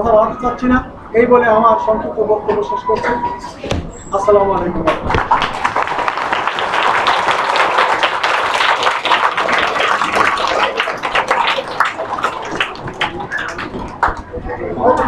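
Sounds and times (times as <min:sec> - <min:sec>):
children applauding: 0:04.9 - 0:14.4.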